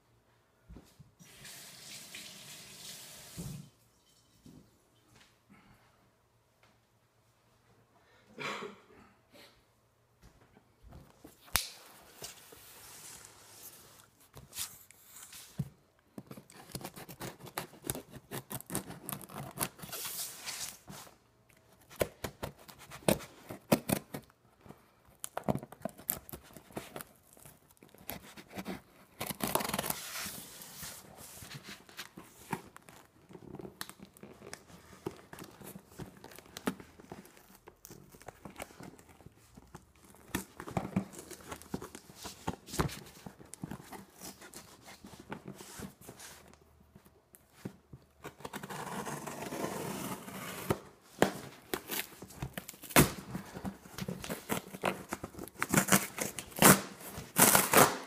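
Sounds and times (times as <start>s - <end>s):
packing tape ripping: 25.2s - 30.2s, 51.6s - 58.0s.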